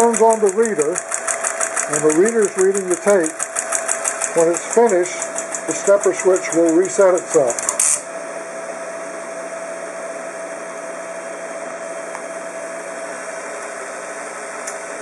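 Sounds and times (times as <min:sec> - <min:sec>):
electric motors humming: 0:00.0 - 0:15.0.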